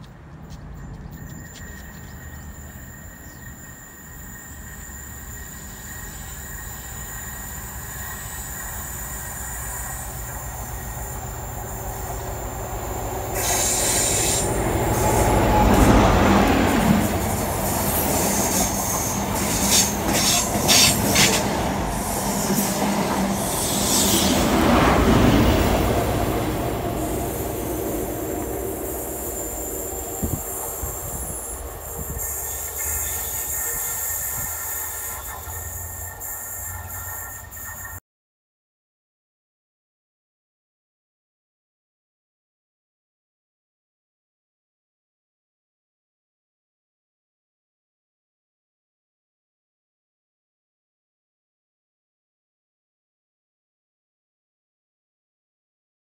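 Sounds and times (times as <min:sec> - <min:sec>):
diesel train passing: 0:00.0 - 0:38.0.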